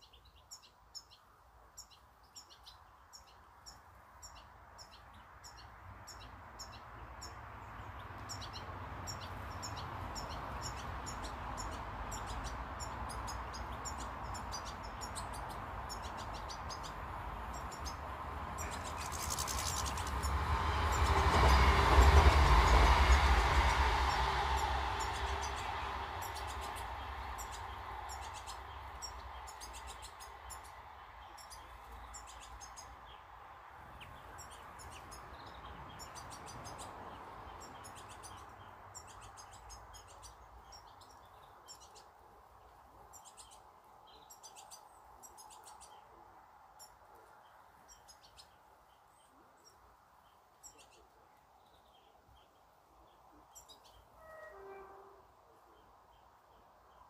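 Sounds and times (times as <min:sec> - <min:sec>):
finches chirping and twittering: 0:01.8 - 0:21.1, 0:25.0 - 0:33.2, 0:33.9 - 0:42.1, 0:43.1 - 0:46.1.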